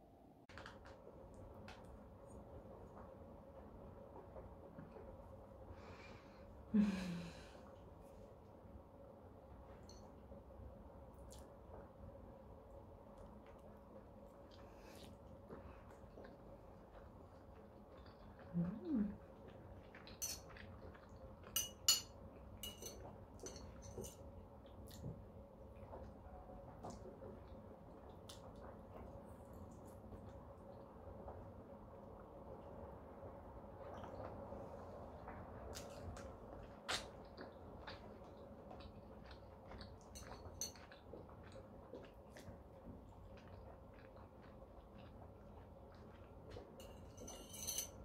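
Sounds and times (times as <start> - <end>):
quiet chewing: 11.1 - 21.6, 22.3 - 32.8, 33.7 - 48.0
fork clinking and scraping on plate: 21.6 - 24.2, 46.8 - 48.0.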